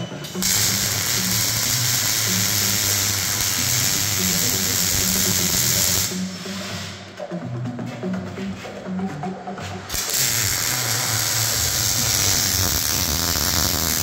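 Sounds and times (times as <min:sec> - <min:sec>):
music with pulsing bass: 0:00.0 - 0:14.0
loud steady hiss: 0:00.4 - 0:07.1, 0:09.9 - 0:14.0.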